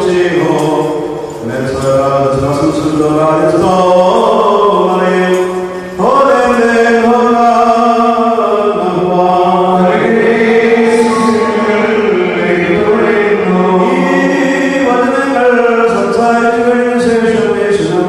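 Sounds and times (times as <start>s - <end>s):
man chanting a prayer: 0.0s - 5.4s, 14.3s - 18.0s.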